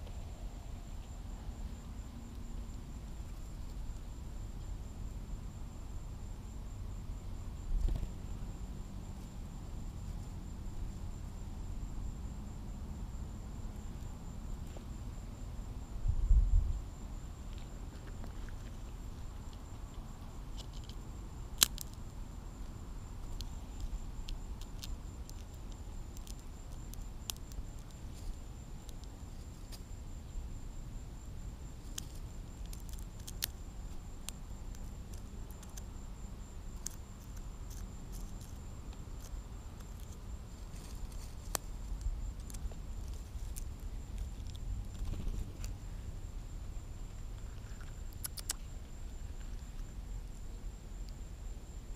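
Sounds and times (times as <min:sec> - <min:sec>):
wind rumble on microphone: 0:15.9 - 0:17.2
peanut shells cracking: 0:21.6 - 0:22.0, 0:31.9 - 0:33.6.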